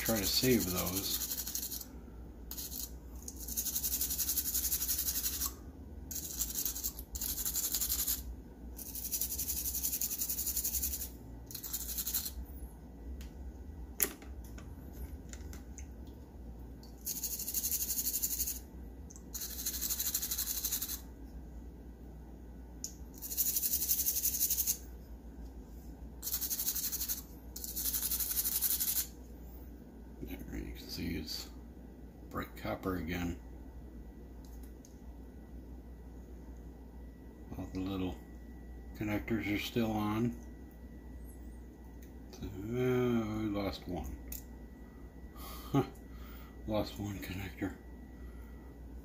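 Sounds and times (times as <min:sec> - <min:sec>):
stiff brush scrubbing: 0:00.0 - 0:01.9.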